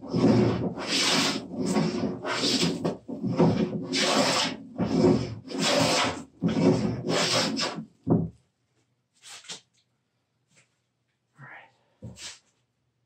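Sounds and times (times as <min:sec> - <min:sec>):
plane cutting wood shavings: 0:00.0 - 0:07.8.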